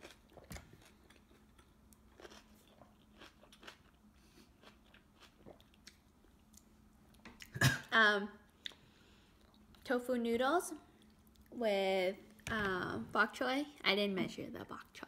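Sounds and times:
chewing: 0:00.0 - 0:06.7.

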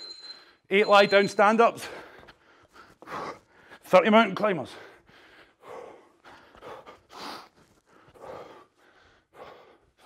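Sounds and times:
man breathing hard: 0:01.8 - 0:03.9, 0:04.7 - 0:10.0.

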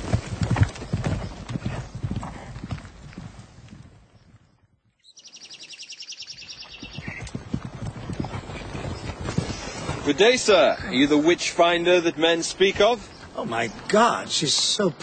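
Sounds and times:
horse hooves clip-clopping: 0:00.0 - 0:04.7, 0:06.5 - 0:14.8.

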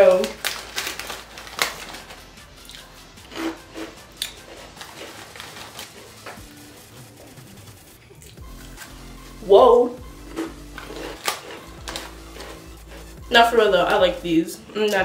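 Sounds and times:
plastic bag rustling: 0:00.0 - 0:07.4, 0:10.0 - 0:14.0
faint background music: 0:00.0 - 0:15.0
crunchy snack chewing: 0:00.2 - 0:06.2, 0:10.1 - 0:13.2.

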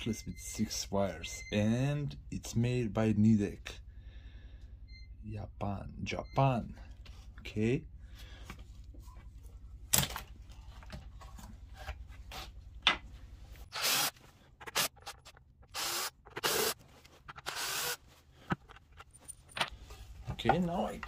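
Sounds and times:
cordless drill spinning: 0:13.7 - 0:18.0.

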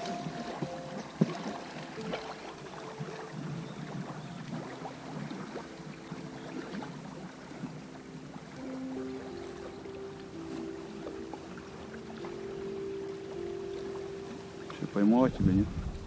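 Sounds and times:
water splashing against boat hull: 0:00.0 - 0:08.0
faint background music: 0:00.0 - 0:16.0
river water rushing: 0:00.0 - 0:16.0.

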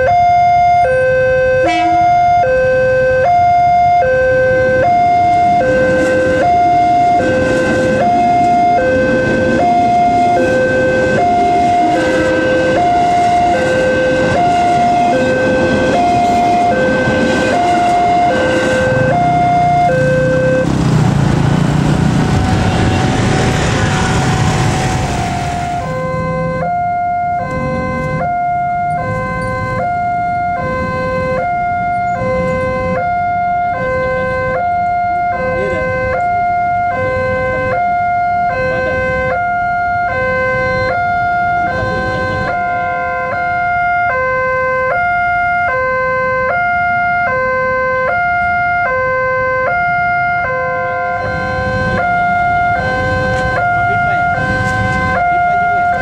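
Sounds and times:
two-tone crossing warning bell: 0:00.0 - 0:56.0
loud rushing with low rumble: 0:19.8 - 0:26.4.

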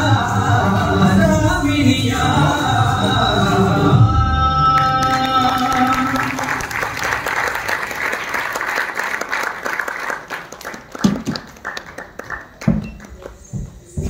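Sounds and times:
audience applause: 0:04.8 - 0:13.3.

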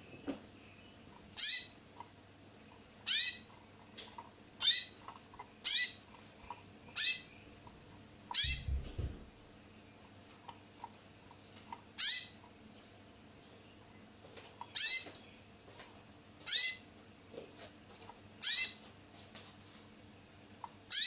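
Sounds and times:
finch calling: 0:00.7 - 0:01.8, 0:03.0 - 0:03.5, 0:04.6 - 0:06.1, 0:06.8 - 0:07.6, 0:08.3 - 0:08.9, 0:12.0 - 0:12.4, 0:14.6 - 0:15.2, 0:16.4 - 0:16.8, 0:18.4 - 0:18.8
low knocks: 0:08.4 - 0:09.4.

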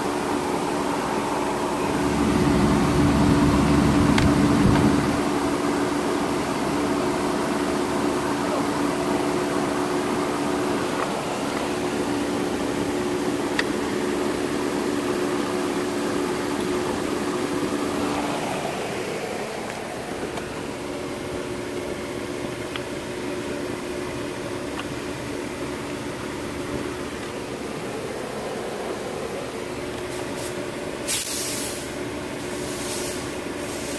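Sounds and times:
car cabin hum: 0:00.5 - 0:08.6.

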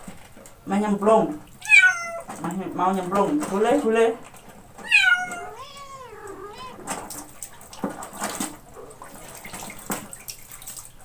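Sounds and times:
water splashing from dipper: 0:01.4 - 0:11.0
kitten meowing: 0:01.6 - 0:02.3, 0:04.8 - 0:06.9.

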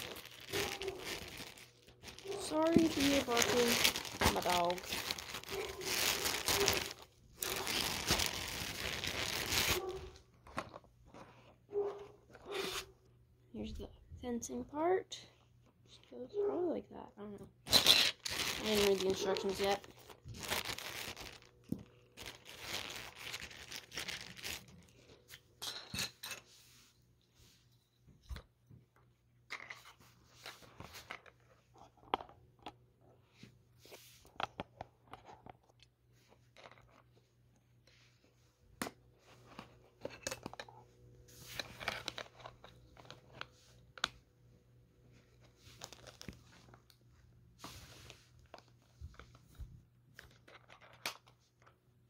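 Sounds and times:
plastic packaging crinkling: 0:00.0 - 0:10.8, 0:17.7 - 0:25.1, 0:45.3 - 0:47.0.

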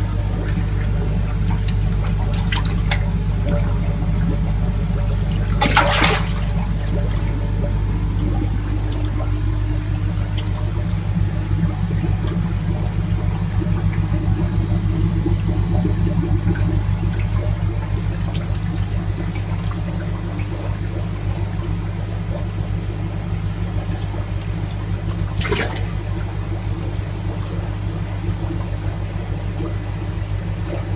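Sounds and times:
low machine hum: 0:00.0 - 0:30.9
water sloshing and trickling: 0:00.0 - 0:30.9
sharp water splash: 0:05.4 - 0:07.3, 0:25.4 - 0:26.0.

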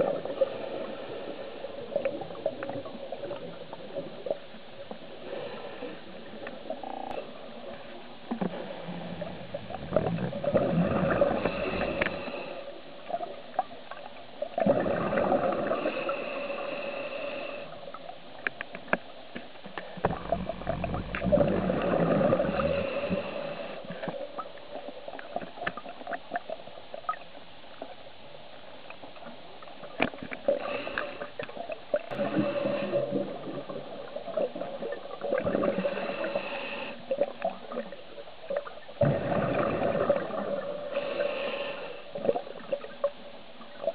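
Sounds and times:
diver exhaling bubbles underwater: 0:09.8 - 0:12.0, 0:14.6 - 0:16.0, 0:20.1 - 0:23.1, 0:39.0 - 0:40.9.

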